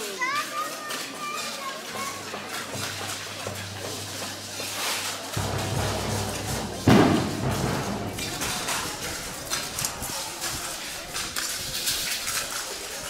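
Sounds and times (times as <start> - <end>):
background murmur: 0.0 - 13.0
low music: 5.4 - 9.6
loud thump: 5.4 - 9.8.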